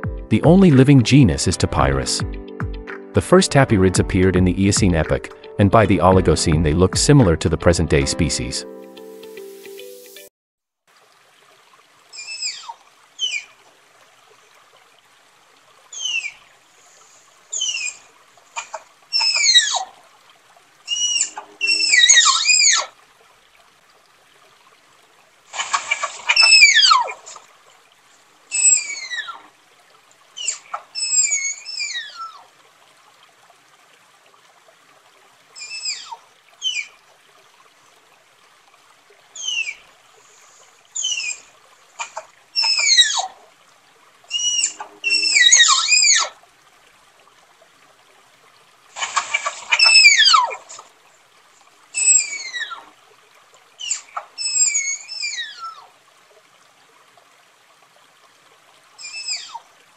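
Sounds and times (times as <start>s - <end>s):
tapir whistling calls: 12.2s - 13.5s, 15.9s - 16.4s, 17.5s - 18.0s, 18.6s - 19.8s, 20.9s - 22.9s, 26.2s - 27.1s, 28.5s - 29.4s, 30.4s - 32.4s, 35.6s - 36.9s, 39.4s - 39.8s, 41.0s - 43.3s, 44.3s - 46.3s, 49.3s - 50.6s, 52.0s - 52.8s, 53.8s - 55.8s, 59.0s - 59.6s.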